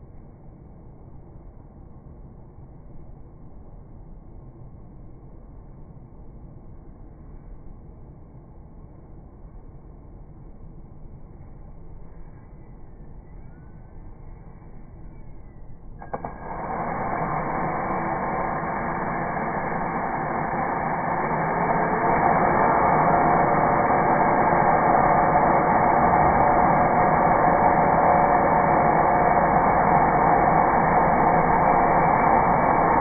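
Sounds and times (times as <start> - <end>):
cordless drill drilling into plywood: 16.0 - 33.0.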